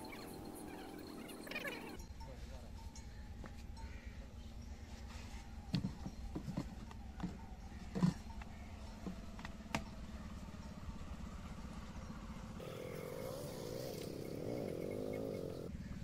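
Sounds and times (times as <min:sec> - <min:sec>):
low engine hum: 0:08.1 - 0:16.0.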